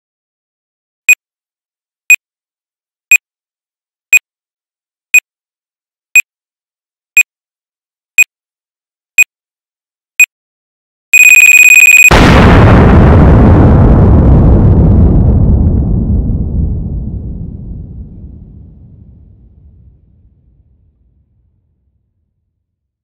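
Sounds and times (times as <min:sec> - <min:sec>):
countdown timer beeps: 0:11.2 - 0:12.1.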